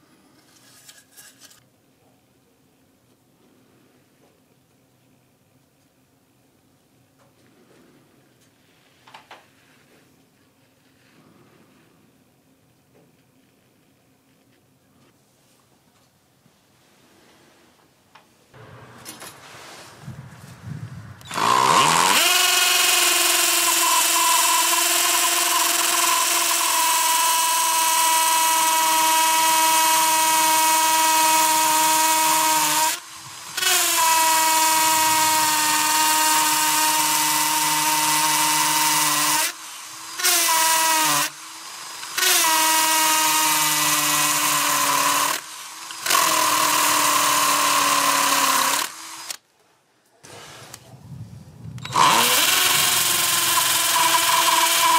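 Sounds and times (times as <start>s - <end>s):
cordless drill motor whine: 21.2s - 49.4s, 51.8s - 54.9s.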